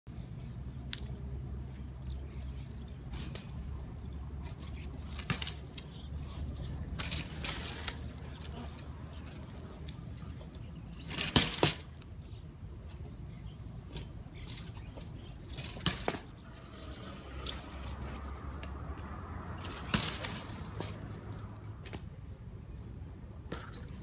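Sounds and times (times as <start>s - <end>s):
bike clicks and scuffs on paving: 0.1s - 22.5s, 23.4s - 24.0s
bike scraping: 4.5s - 10.4s, 14.4s - 21.3s
bike clattering knocks: 11.1s - 11.9s.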